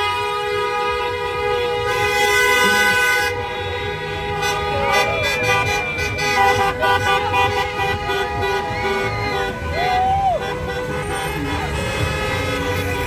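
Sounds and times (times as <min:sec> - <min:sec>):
car horns honking: 0:00.0 - 0:13.0
people shouting and cheering: 0:04.6 - 0:11.8.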